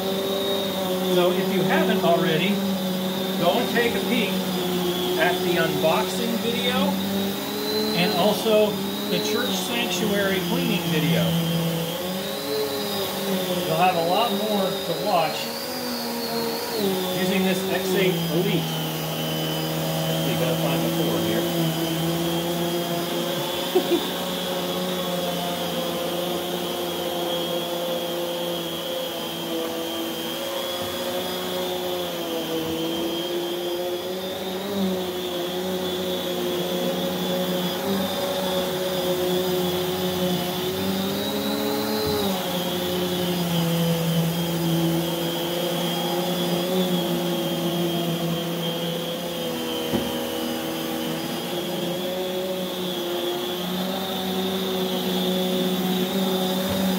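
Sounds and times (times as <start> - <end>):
vacuum cleaner motor whine: 0.0 - 56.9
light knocks: 49.9 - 50.2.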